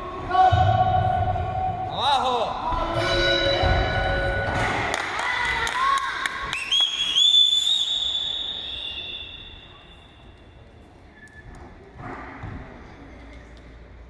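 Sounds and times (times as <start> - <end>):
high shrill whistle: 6.6 - 10.3.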